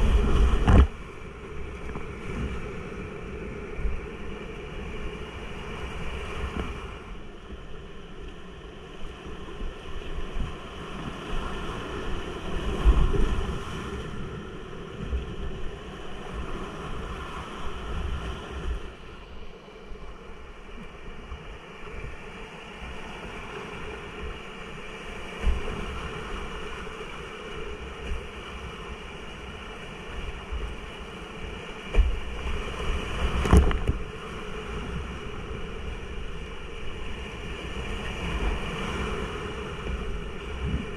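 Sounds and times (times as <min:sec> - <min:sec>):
wind buffeting microphone: 0:00.0 - 0:02.6.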